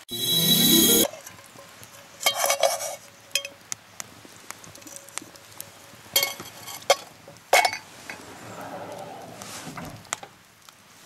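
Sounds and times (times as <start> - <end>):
utensils scraping cookware: 2.2 - 3.0
metal utensils clinking on cookware: 2.2 - 3.5.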